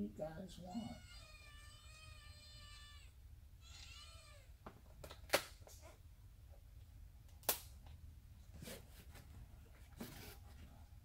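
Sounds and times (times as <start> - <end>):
cat meowing: 0.8 - 4.5.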